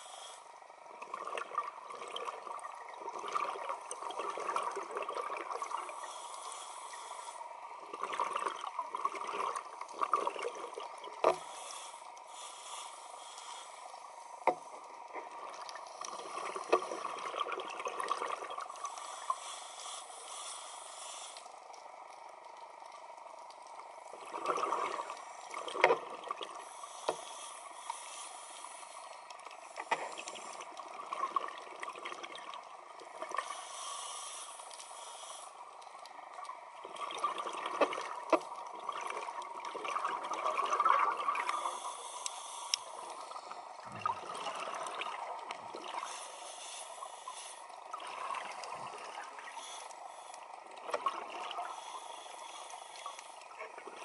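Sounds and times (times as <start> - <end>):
bubbles gurgling underwater: 1.0 - 5.9, 16.4 - 18.6, 24.2 - 26.5, 36.8 - 41.6, 43.8 - 46.1.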